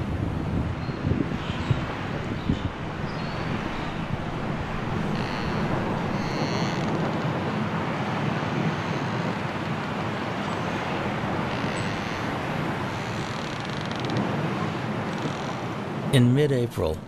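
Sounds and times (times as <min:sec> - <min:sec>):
strong wind through treetops: 0:00.0 - 0:17.0.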